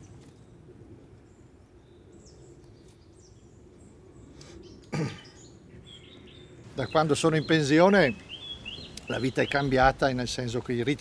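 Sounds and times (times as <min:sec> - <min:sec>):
faint bird chirps: 0:01.2 - 0:09.9.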